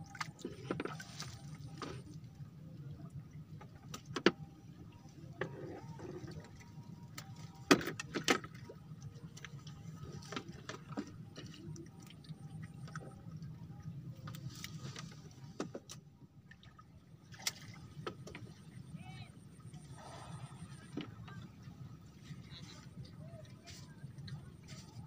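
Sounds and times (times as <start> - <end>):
steady low hum: 8.6 - 25.0.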